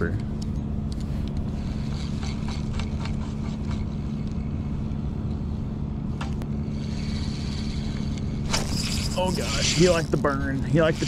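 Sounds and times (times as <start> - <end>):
low mechanical hum: 0.0 - 11.0
fishing reel clicking: 6.7 - 10.2.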